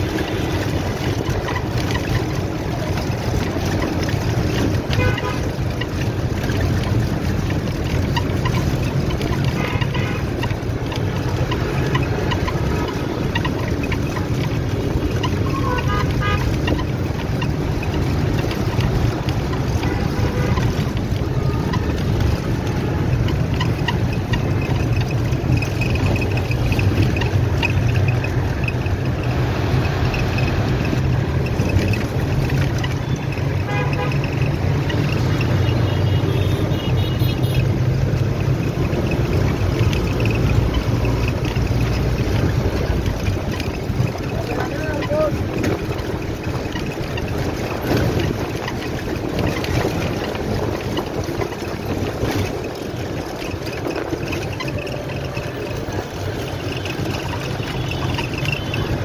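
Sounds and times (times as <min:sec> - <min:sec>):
road and wind noise: 0:00.0 - 0:59.0
vehicle interior rumble: 0:00.0 - 0:59.0
car horn toots: 0:04.9 - 0:05.5, 0:09.5 - 0:10.4, 0:15.5 - 0:16.6, 0:33.0 - 0:34.3, 0:35.8 - 0:37.8.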